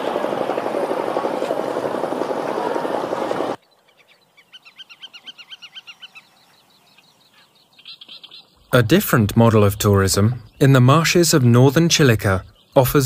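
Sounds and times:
boat diesel engines running: 0.0 - 3.6.

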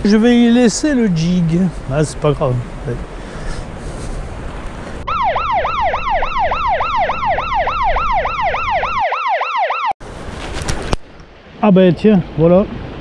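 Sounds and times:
yelping siren wail: 5.0 - 10.0.

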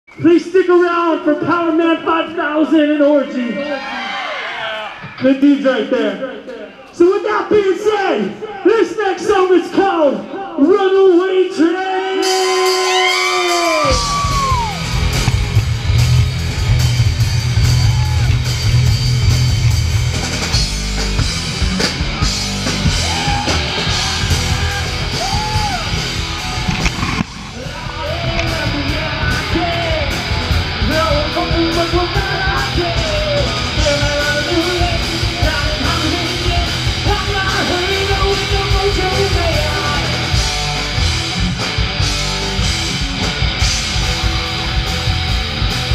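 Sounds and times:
rock band playing: 12.1 - 45.9
yelled and sung vocals: 27.5 - 40.4.

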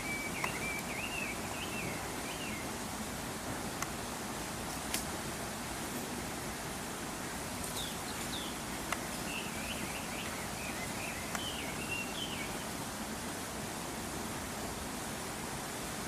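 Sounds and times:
small bird twittering: 0.0 - 2.6
steady outdoor hiss: 0.0 - 16.0.

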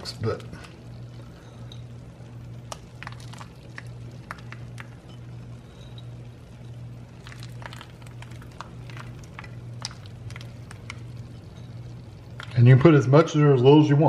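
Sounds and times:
steady low hum: 0.0 - 14.0
nut pieces pattering: 2.7 - 5.1, 7.1 - 11.3.

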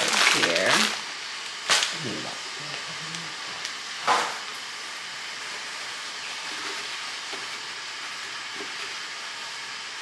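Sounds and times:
shopping bag crinkle: 0.0 - 1.0.

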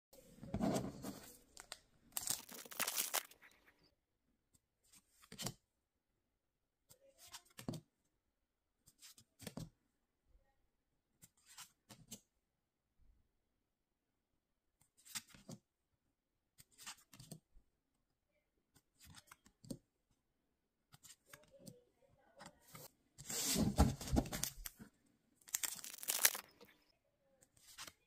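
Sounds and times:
cards rustling: 1.0 - 3.4, 23.3 - 24.8, 25.5 - 26.8
foil pack tearing: 2.2 - 3.3, 25.5 - 26.5.

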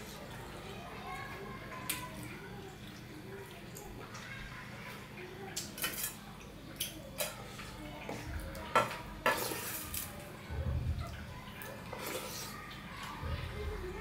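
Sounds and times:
wet eating sound: 0.0 - 14.0
fingers mixing food on steel plate: 6.8 - 13.4.

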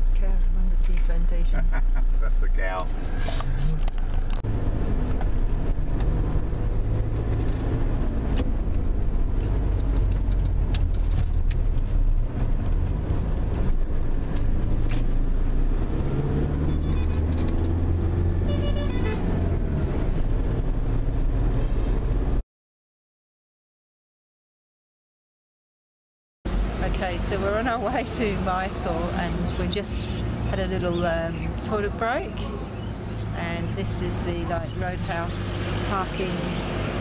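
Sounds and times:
car cabin engine and road rumble: 0.0 - 22.4, 26.5 - 35.3
car horn: 18.4 - 19.4.

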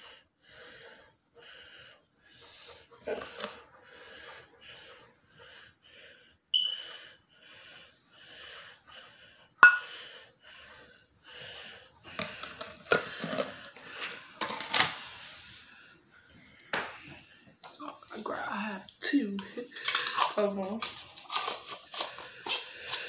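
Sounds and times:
spoon clinking on metal bowl: 9.6 - 9.9
spoon scraping gritty scrub: 19.4 - 23.0.

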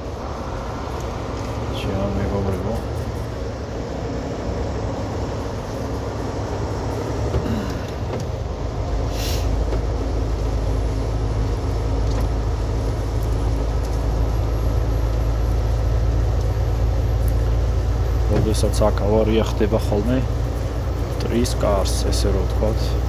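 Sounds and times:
truck engine and road drone: 0.0 - 23.0
tyres on wet pavement: 0.0 - 23.0
brief hiss: 9.1 - 9.6.

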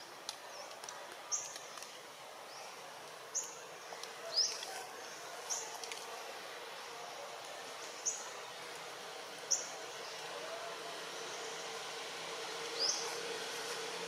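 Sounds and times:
faint steady hum: 0.0 - 14.0
bird chirping: 9.4 - 10.4, 12.7 - 13.3.

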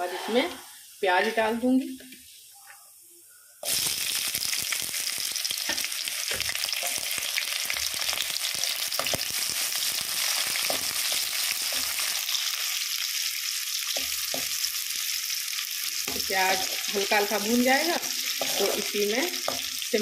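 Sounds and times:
onions sizzling in hot oil: 0.0 - 3.0, 3.6 - 20.0
spoon stirring in pan: 5.5 - 15.0, 15.8 - 19.9.

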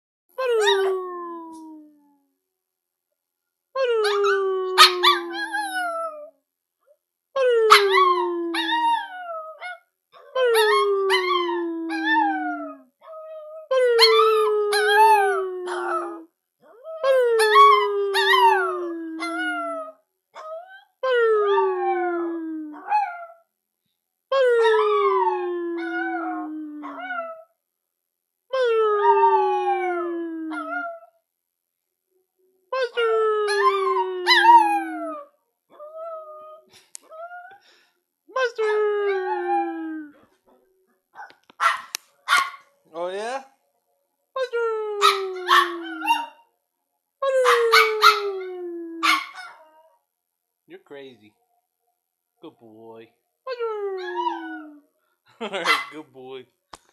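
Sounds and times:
dog howling: 7.4 - 23.4, 24.5 - 27.5, 33.4 - 37.6, 45.0 - 46.4, 47.2 - 49.9, 53.5 - 54.8.

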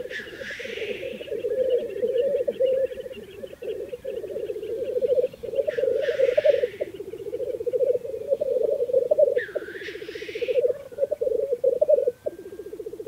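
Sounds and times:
grouse hissing sneeze call: 0.0 - 1.2, 5.7 - 6.9, 9.8 - 10.6
grouse bubbling cooing chorus: 0.0 - 13.0.

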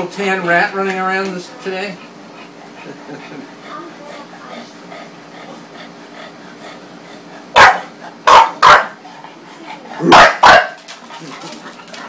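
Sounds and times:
dog barking: 7.6 - 9.0, 10.0 - 10.8.

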